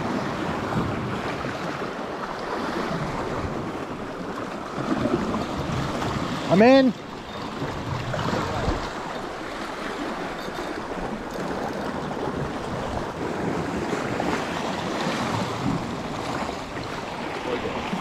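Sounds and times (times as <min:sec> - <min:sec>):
wind on microphone: 0:07.2 - 0:18.0.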